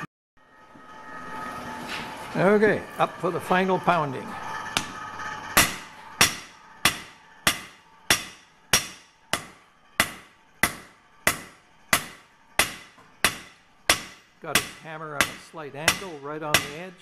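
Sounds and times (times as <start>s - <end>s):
hammer striking steel on anvil: 2.9s - 17.0s.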